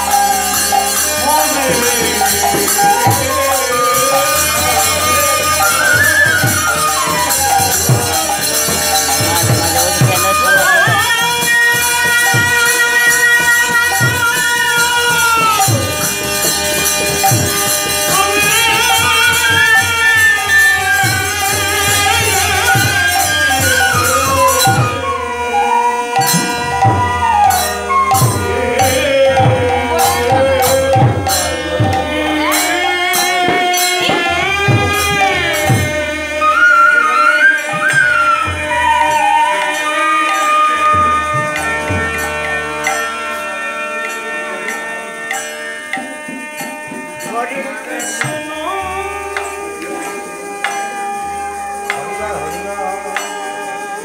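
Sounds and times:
bamboo flute melody: 0.0s - 15.9s, 18.1s - 30.4s, 35.1s - 43.1s
hand drums beating: 0.0s - 25.1s, 26.2s - 54.0s
harmonium chords: 0.0s - 54.0s.

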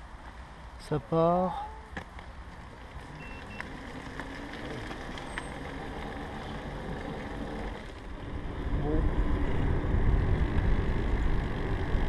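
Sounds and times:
drivetrain whir: 2.5s - 12.0s.

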